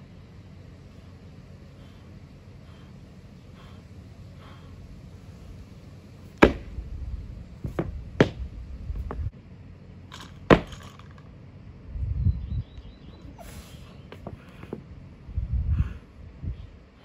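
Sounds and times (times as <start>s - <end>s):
feet stamping: 6.2s - 9.3s, 10.4s - 11.0s.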